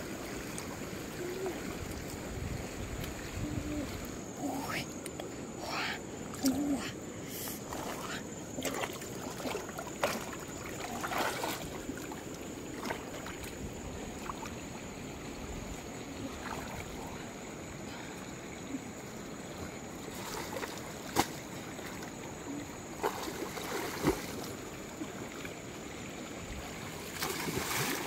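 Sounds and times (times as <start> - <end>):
wading through muddy water: 0.0 - 14.8, 16.1 - 25.7, 26.5 - 28.0
sharp splashes: 7.7 - 12.2, 23.0 - 24.5, 27.0 - 28.0.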